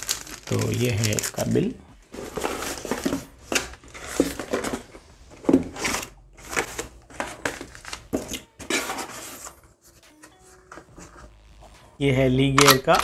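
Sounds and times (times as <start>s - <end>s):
plastic wrap crinkling: 0.0s - 4.6s, 5.8s - 8.4s
cardboard box rustling: 2.1s - 9.5s.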